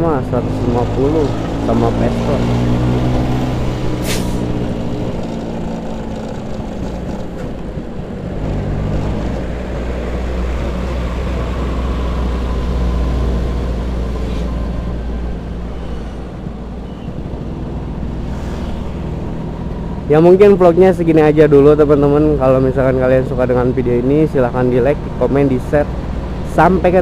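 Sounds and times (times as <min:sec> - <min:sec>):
road noise: 0:00.0 - 0:27.0.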